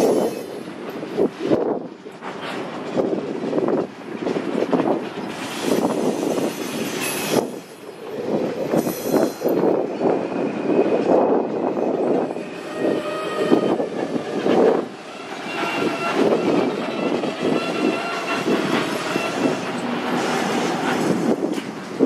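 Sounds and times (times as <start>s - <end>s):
train wheels clattering over rail joints: 0.0s - 10.2s, 11.4s - 22.0s
wheels squealing: 12.2s - 21.3s.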